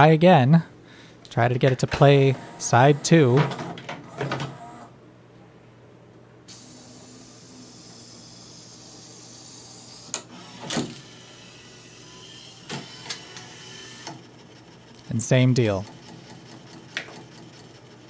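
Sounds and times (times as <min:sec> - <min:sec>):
laser carriage mechanism whirring: 0:02.2 - 0:04.9, 0:06.5 - 0:15.1.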